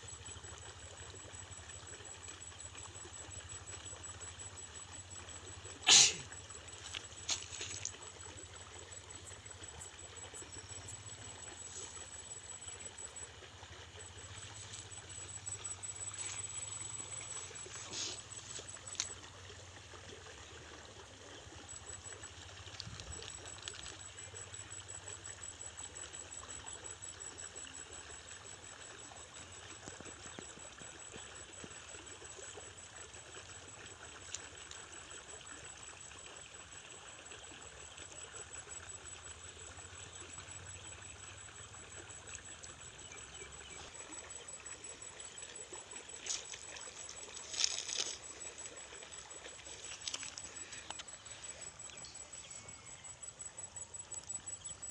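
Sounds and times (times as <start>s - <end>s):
water trickling in a creek: 0.0s - 54.9s
thin high-pitched pulsing tone: 6.5s - 19.6s, 38.6s - 54.9s.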